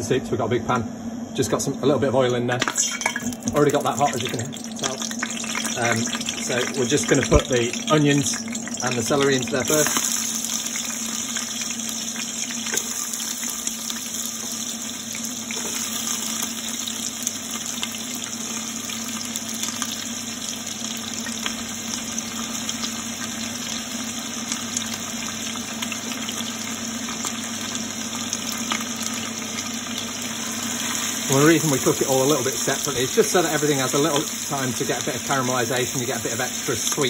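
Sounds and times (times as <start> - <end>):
low steady hum: 0.0 - 37.0
vegetables sizzling in hot oil: 2.7 - 37.0.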